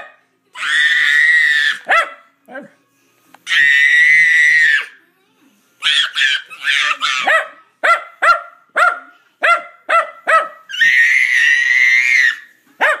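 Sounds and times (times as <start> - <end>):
dog high-pitched cry: 5.8 - 7.6.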